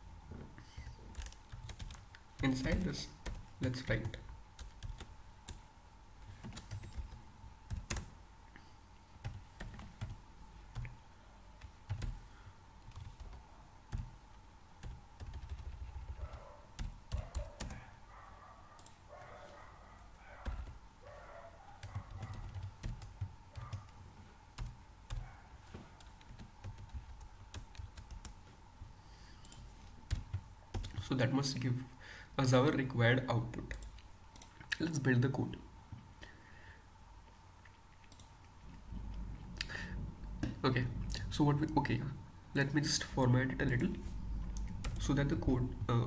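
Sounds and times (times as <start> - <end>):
computer keyboard typing: 1.1 - 5.6, 6.2 - 8.2, 9.2 - 11.0, 11.6 - 12.2, 12.8 - 14.2, 14.8 - 17.8, 20.4 - 20.8, 21.8 - 24.0, 24.6 - 25.3, 26.0 - 28.5, 29.4 - 31.0, 38.0 - 38.4, 43.6 - 46.0.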